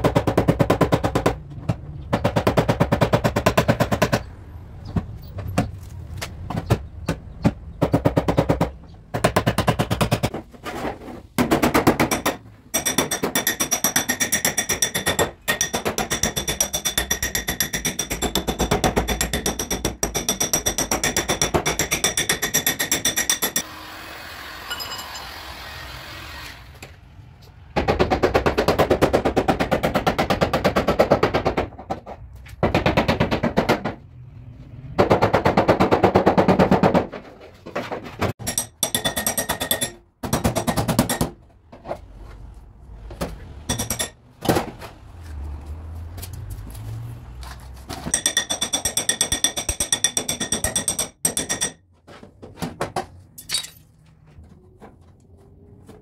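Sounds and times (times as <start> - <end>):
hammer beating sheet metal: 11.4 - 23.7, 38.2 - 41.4, 48.1 - 51.8.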